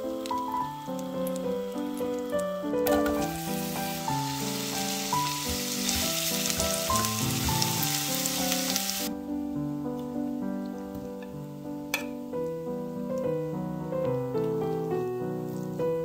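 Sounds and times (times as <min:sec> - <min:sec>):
onion sizzling in butter: 0:00.0 - 0:09.1
background music: 0:00.0 - 0:12.6.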